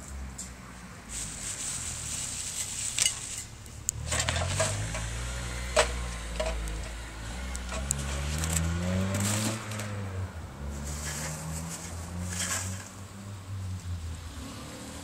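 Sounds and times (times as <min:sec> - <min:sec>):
vehicle engine hum: 0:00.0 - 0:15.0
light clinks and knocks: 0:05.8 - 0:07.0.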